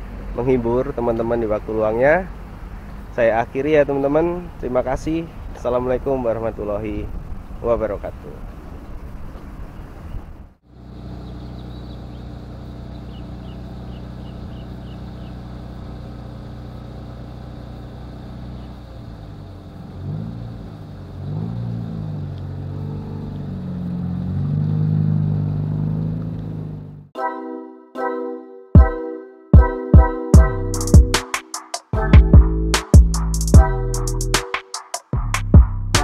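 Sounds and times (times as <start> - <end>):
car engine idling and revving: 0.0 - 5.7, 8.5 - 27.1.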